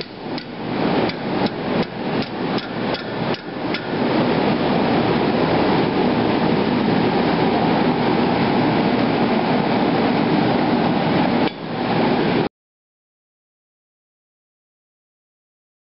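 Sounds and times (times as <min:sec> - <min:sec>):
gas forge burner roaring: 0:00.0 - 0:12.5.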